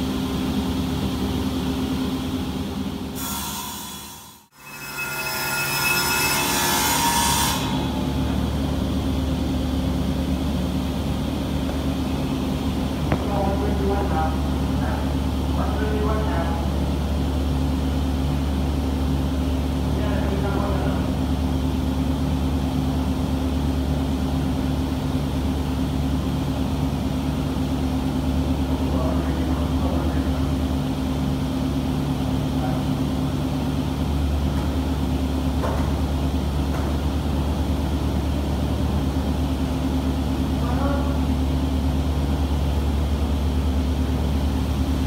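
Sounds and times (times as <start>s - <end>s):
panel saw droning: 3.2s - 8.5s.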